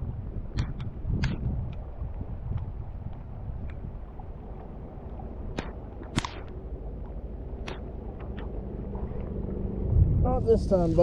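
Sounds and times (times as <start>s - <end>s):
heavy rain and wind: 0.0s - 11.0s
sharp ticks: 4.6s - 8.6s.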